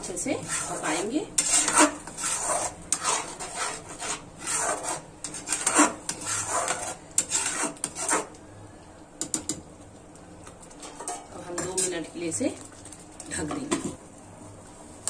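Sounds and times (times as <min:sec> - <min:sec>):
spoon scraping metal pan: 0:00.0 - 0:08.4, 0:10.8 - 0:12.1.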